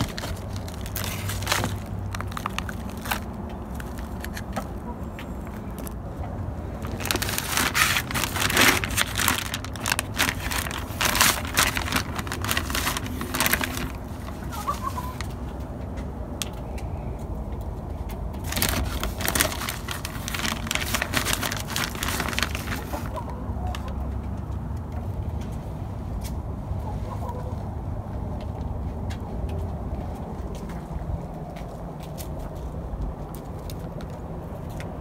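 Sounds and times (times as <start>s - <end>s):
plastic bag crinkling: 0.0s - 4.6s, 6.7s - 15.4s, 18.4s - 23.2s.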